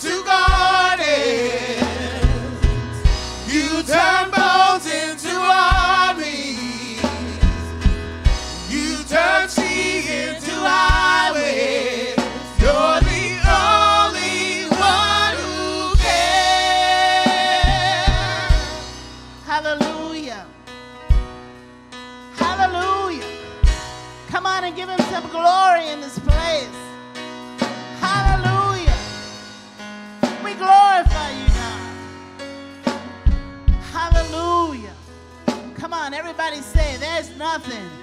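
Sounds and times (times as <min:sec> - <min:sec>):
man singing: 0:00.0 - 0:20.5, 0:22.4 - 0:23.2, 0:28.0 - 0:29.2, 0:30.4 - 0:32.0, 0:33.0 - 0:35.0, 0:35.7 - 0:38.0
bass guitar: 0:00.0 - 0:25.4, 0:26.2 - 0:38.0
drum kit: 0:00.0 - 0:38.0.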